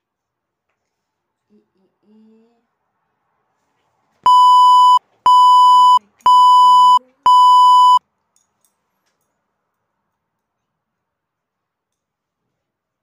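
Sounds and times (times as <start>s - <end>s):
electronic test-tone beeps: 4.3s - 8.0s.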